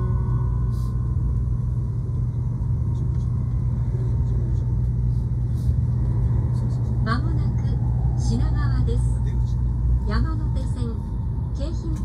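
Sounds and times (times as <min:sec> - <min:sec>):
train rumbling inside cabin: 0:00.0 - 0:12.0.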